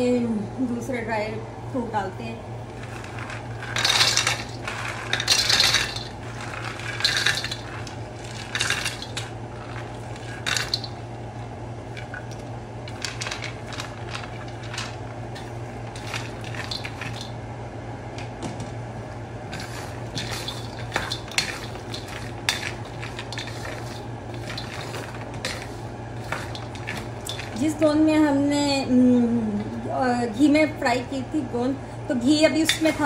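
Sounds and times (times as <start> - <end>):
wooden spoon stirring nuts: 2.7 - 11.0, 12.0 - 17.3, 19.5 - 27.8
nuts clattering into metal wok: 2.8 - 11.0, 12.9 - 15.0, 15.9 - 17.4, 19.5 - 27.8.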